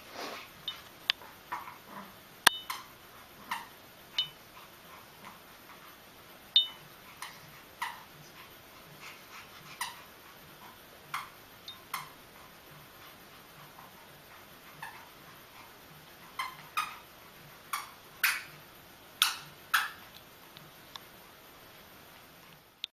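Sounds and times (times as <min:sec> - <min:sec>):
rubber squeaky toy squeaking: 0:16.3 - 0:17.0.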